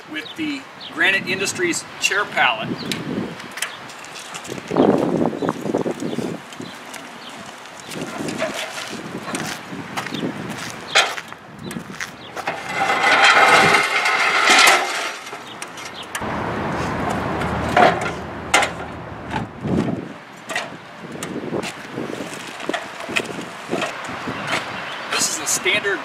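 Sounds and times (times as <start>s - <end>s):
metal rattling and scraping: 7.3s - 9.4s, 12.3s - 20.8s
metal clanks: 12.4s - 16.2s, 17.0s - 20.8s.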